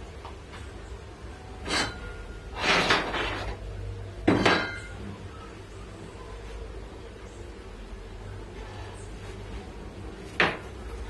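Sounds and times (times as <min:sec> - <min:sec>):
metal scraping against metal: 0:01.6 - 0:03.7.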